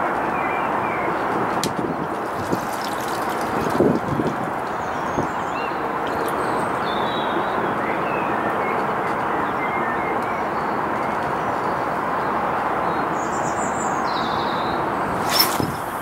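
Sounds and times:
small birds chirping: 1.8s - 11.9s.

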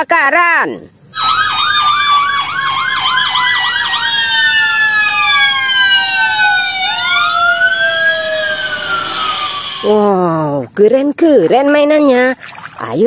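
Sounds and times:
second siren falling tone: 1.2s - 10.2s
siren yelping and wailing: 1.2s - 10.2s.

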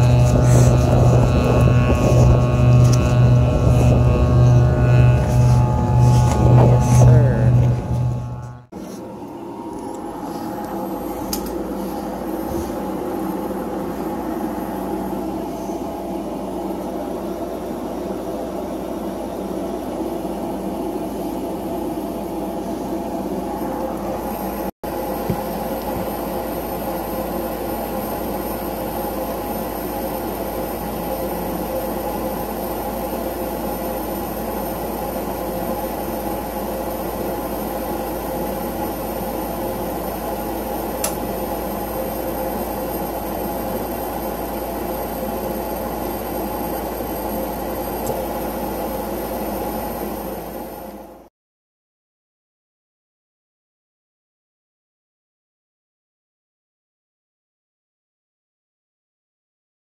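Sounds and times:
gas furnace burners rushing: 0.0s - 18.0s
draft inducer motor hum: 0.0s - 51.1s.

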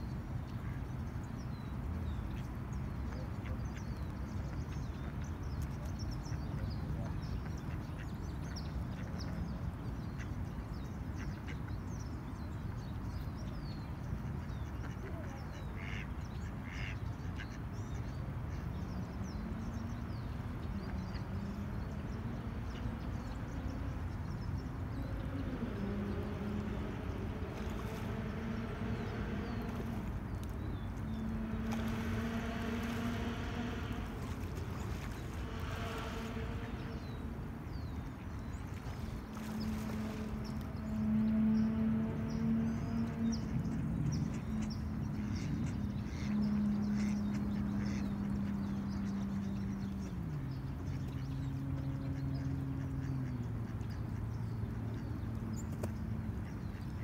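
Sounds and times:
distant traffic rumble: 0.0s - 57.0s
ducks quacking: 14.8s - 17.6s, 30.9s - 37.4s, 42.2s - 48.6s
droning engine: 18.5s - 57.0s.

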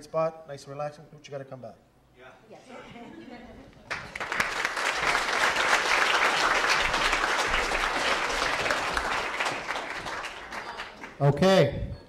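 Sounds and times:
audience applauding: 3.9s - 11.3s.

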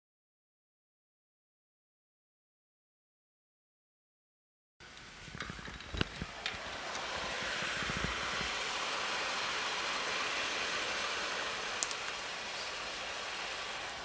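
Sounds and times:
oven fan rushing: 4.8s - 14.0s.

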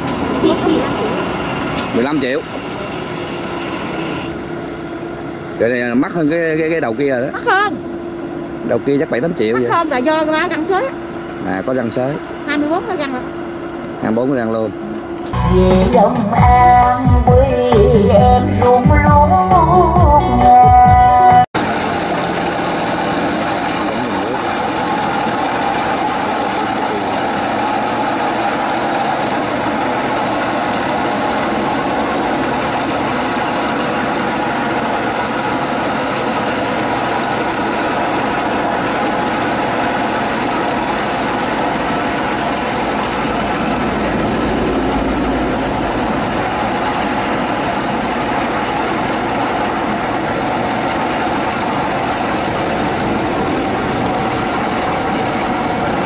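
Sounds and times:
tractor engine running under load: 0.0s - 16.0s, 21.6s - 56.0s.

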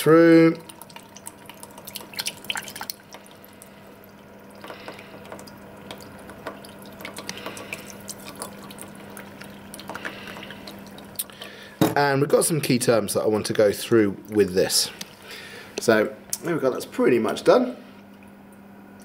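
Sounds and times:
low steady hum: 0.0s - 19.0s
liquid pouring into funnel: 0.4s - 11.7s
water dripping into plastic beaker: 0.5s - 11.6s.

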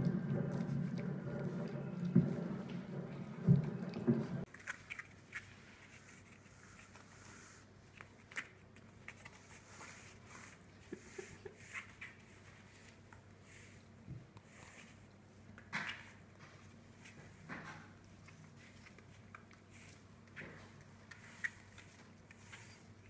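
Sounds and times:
puppies eating from bowls: 0.0s - 6.6s.

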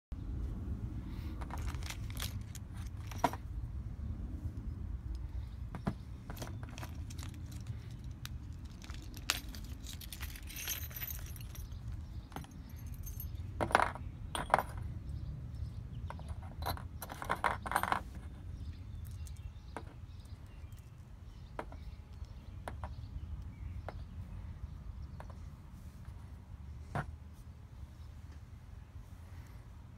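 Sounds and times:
small metal screws clinking: 1.3s - 3.6s, 5.1s - 14.9s, 16.0s - 23.0s.

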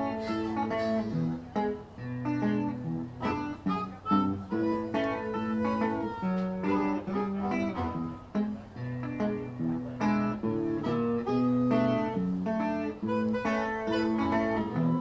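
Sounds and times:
electric guitar: 0.0s - 15.0s
harmonica wailing: 3.2s - 8.2s, 13.0s - 15.0s.

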